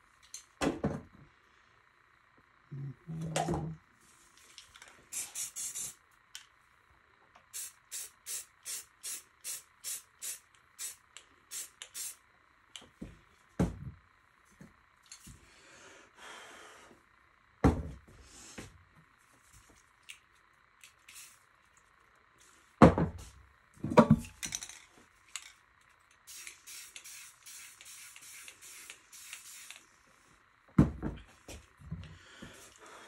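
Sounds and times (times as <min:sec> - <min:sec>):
spray paint can hissing: 0:05.1 - 0:06.0, 0:07.5 - 0:12.2, 0:20.9 - 0:21.4, 0:26.2 - 0:29.8.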